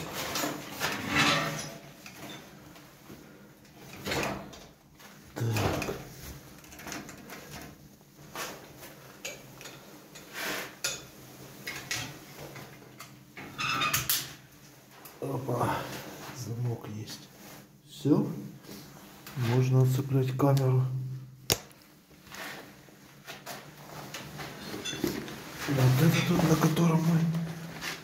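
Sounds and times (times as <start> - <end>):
objects clunking and rattling: 0.0 - 14.4, 23.2 - 28.0.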